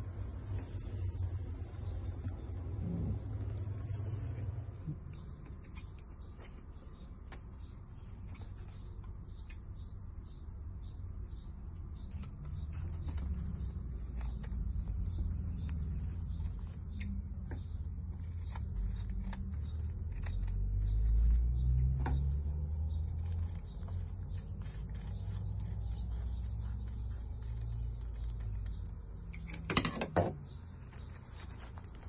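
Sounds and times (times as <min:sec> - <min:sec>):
steady low rumble: 0:00.0 - 0:09.3
scissors snipping face mask: 0:11.9 - 0:29.7.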